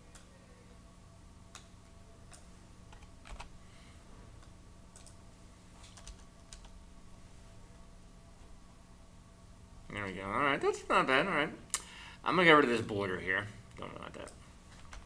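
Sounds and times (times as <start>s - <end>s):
steady low hum: 0.0s - 15.0s
keyboard typing: 2.3s - 3.5s, 4.9s - 5.2s, 5.8s - 6.8s.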